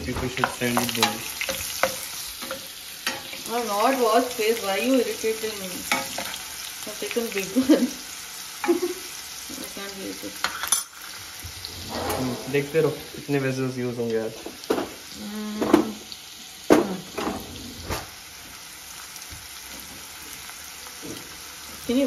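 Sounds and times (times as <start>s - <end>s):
spatula scraping a pan: 0.0s - 4.0s, 10.4s - 13.0s
onions sizzling in oil: 0.0s - 22.0s.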